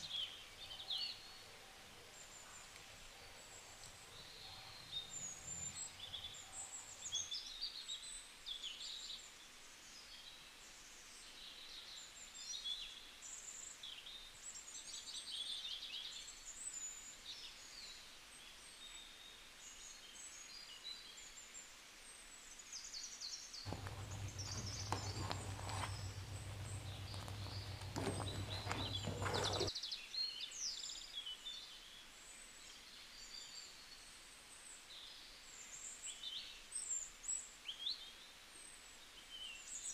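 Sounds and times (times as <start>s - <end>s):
small birds chirping: 0.0s - 8.0s, 23.6s - 29.9s
low hum with clicking and clatter: 23.7s - 29.7s.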